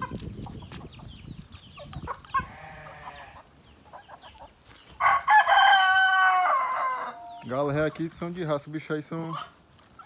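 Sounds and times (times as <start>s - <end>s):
chickens clucking: 0.0s - 10.0s
rooster crowing: 5.0s - 7.4s.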